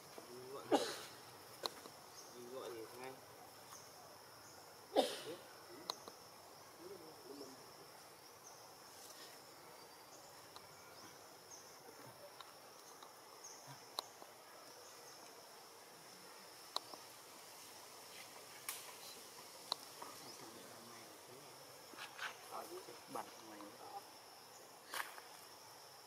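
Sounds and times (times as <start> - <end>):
insect chirring: 0.0 - 26.0.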